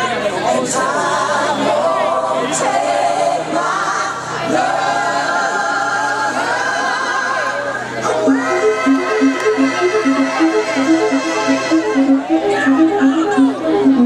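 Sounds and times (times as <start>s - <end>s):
gospel choir singing: 0.3s - 13.4s.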